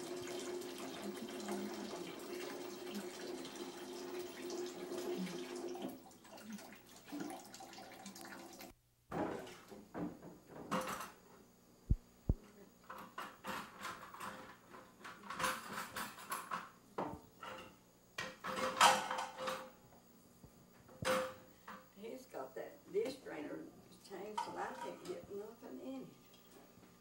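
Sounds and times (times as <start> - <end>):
dishes and cutlery clinking: 17.4 - 19.7.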